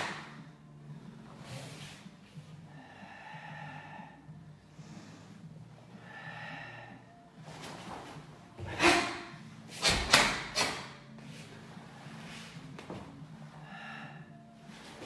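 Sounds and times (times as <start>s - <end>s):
person breathing: 0.8s - 7.8s, 13.4s - 15.0s.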